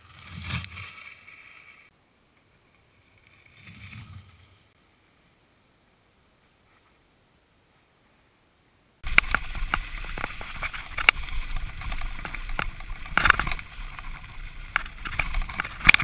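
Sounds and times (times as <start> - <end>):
low wind rumble: 8.2 - 16.0
bike rattling and knocking: 9.0 - 16.0
tyre noise: 9.0 - 16.0.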